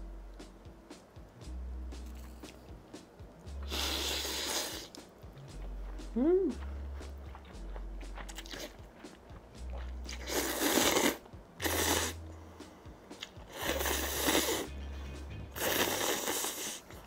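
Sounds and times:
soft background music: 0:00.0 - 0:17.0
person slurping noodles: 0:03.7 - 0:04.9, 0:10.1 - 0:12.2, 0:13.5 - 0:14.7, 0:15.6 - 0:17.0.

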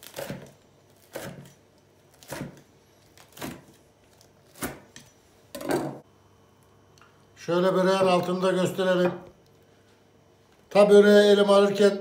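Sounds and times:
knife chopping crisp pastry: 0:00.0 - 0:05.2.

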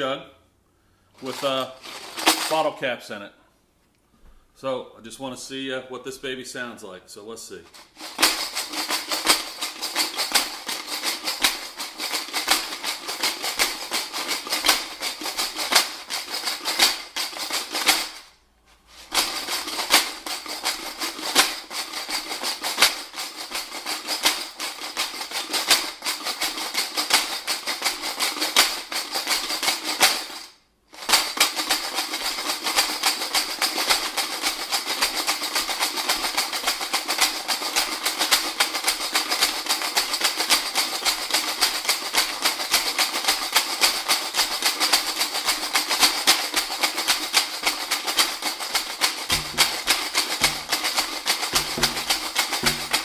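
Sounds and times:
bottle caps rattling in plastic jug: 0:46.2 - 0:53.0.

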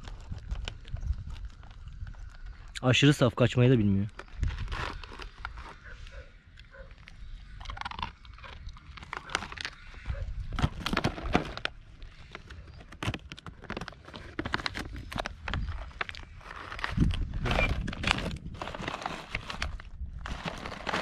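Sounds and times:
animals eating with crunching: 0:00.0 - 0:21.0.

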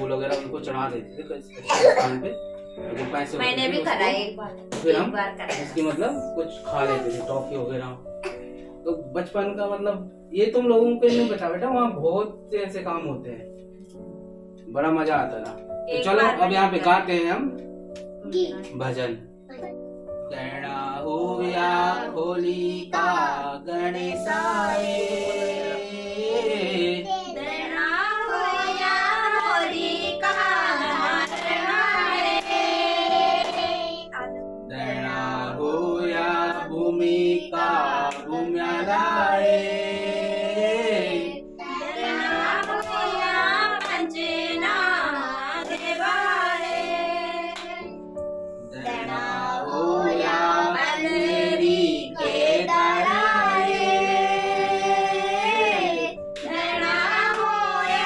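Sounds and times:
women and children singing: 0:24.0 - 0:34.1, 0:41.6 - 0:47.9, 0:48.8 - 0:58.0.

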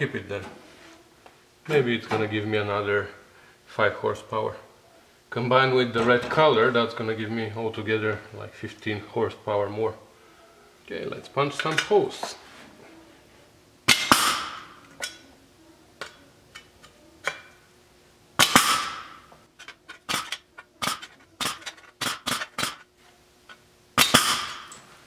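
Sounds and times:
pneumatic punch snapping: 0:13.9 - 0:14.7, 0:18.4 - 0:22.8, 0:24.0 - 0:24.8.

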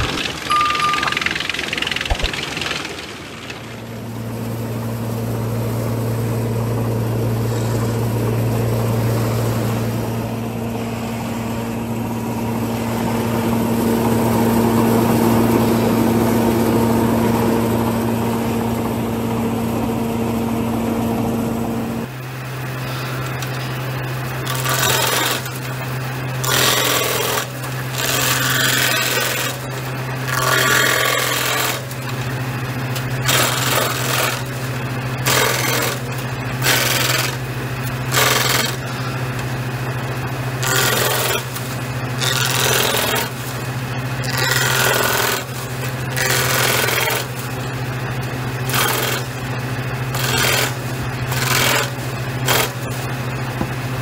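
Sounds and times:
spinning cutter head humming: 0:00.0 - 0:53.8
circular saw machine humming: 0:00.0 - 0:54.0
rasping cutting bursts: 0:24.4 - 0:32.2, 0:33.2 - 0:34.6, 0:35.2 - 0:39.2, 0:40.6 - 0:47.5, 0:48.6 - 0:49.4, 0:50.1 - 0:53.0.

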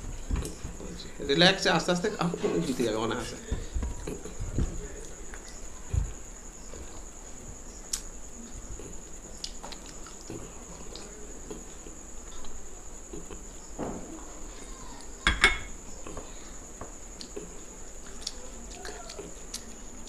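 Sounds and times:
glass bowl clinking on plate: 0:15.2 - 0:15.8.

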